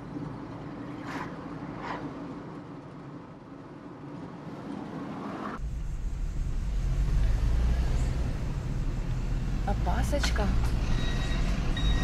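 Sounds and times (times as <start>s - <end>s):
car engine and tyre noise: 0.0s - 12.0s
passing traffic whooshes: 4.0s - 11.9s
low rumble: 5.6s - 12.0s.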